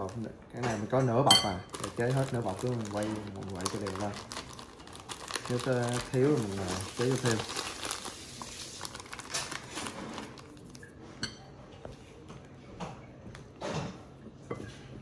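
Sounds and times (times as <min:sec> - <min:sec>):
plastic bag rustling: 0:00.0 - 0:00.3, 0:01.4 - 0:11.0
spoon clinking against glass bowl: 0:01.3 - 0:01.7, 0:11.2 - 0:11.5.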